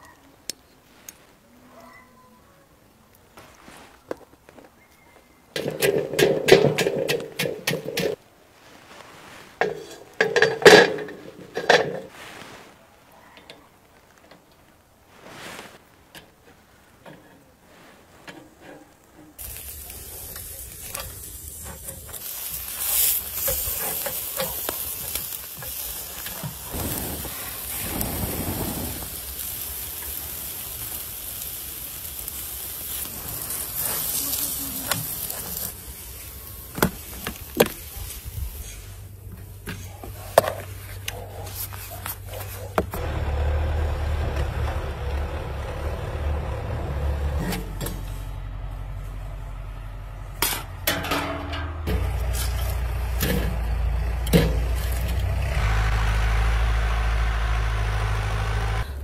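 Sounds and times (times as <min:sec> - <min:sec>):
meat sizzling over charcoal: 0:19.0 - 0:45.7, 0:51.8 - 0:59.0.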